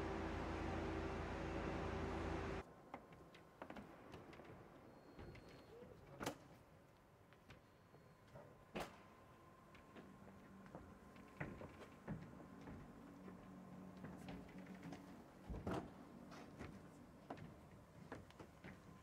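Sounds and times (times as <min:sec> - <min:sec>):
faint steady hum: 0:00.0 - 0:02.6.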